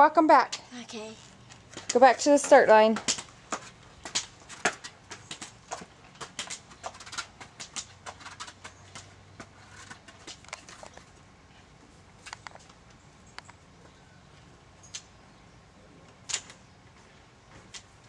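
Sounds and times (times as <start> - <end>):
crutch tips tapping on concrete: 1.5 - 11.0.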